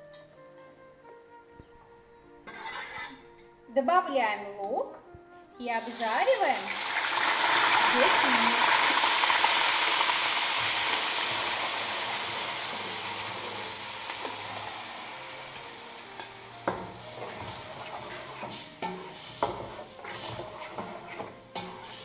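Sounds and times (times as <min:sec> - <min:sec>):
spoon scraping a metal pot: 0:02.4 - 0:03.4, 0:16.2 - 0:22.0
onion sizzling in hot oil: 0:05.7 - 0:22.0.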